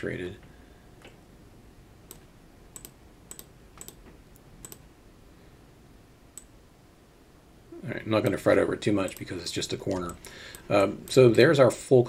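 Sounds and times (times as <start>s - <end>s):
computer mouse clicks: 2.0s - 4.9s, 9.0s - 9.3s, 9.9s - 11.2s.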